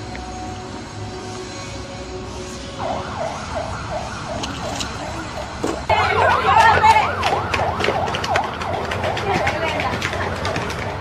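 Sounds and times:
siren-like warbling wail: 2.7 - 9.3.

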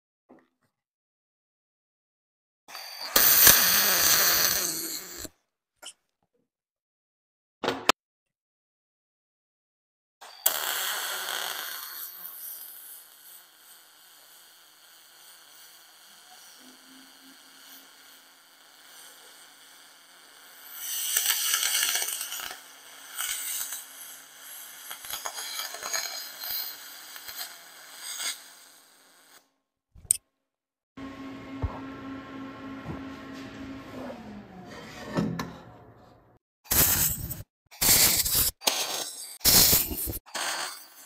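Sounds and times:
welding arc hissing and crackling: 10.4 - 29.4, 36.7 - 41.0.

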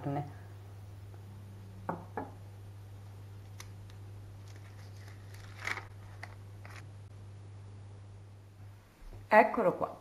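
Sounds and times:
steady low hum: 0.0 - 9.3
baking paper crinkling: 3.4 - 6.9.

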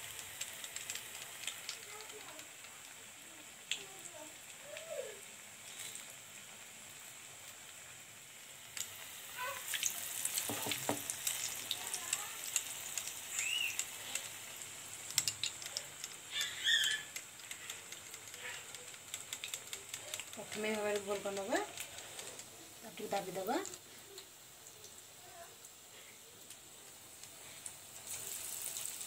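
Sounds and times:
fritters sizzling in hot oil: 0.0 - 29.0.

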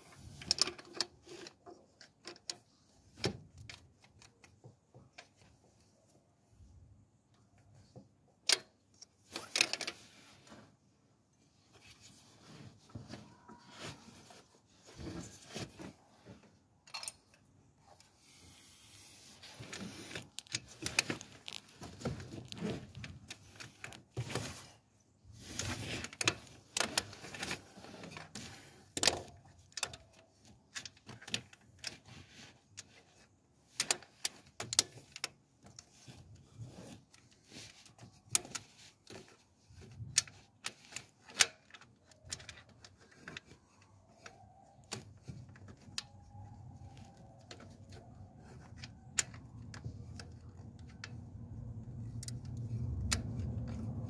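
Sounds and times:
hand tools and metal parts clinking: 12.9 - 24.7.

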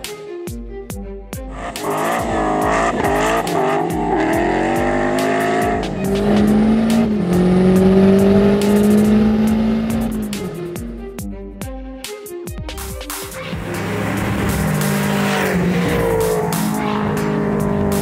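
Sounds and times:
film music score: 0.0 - 18.0
racing car engine accelerating: 1.5 - 10.9, 13.4 - 18.0.

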